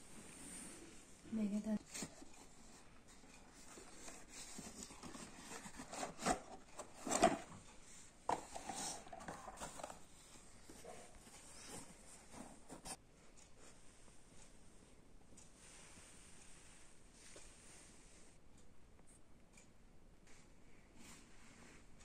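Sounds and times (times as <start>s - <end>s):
cardboard box rustling: 1.9s - 7.6s.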